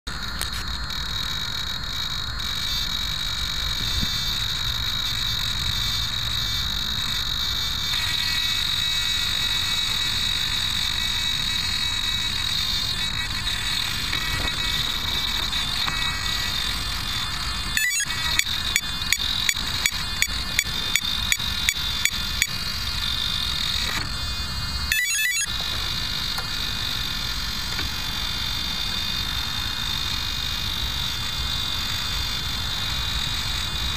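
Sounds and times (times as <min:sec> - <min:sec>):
evenly spaced ticks: 0:00.1 - 0:23.8
high-pitched whine and buzz: 0:00.1 - 0:33.9.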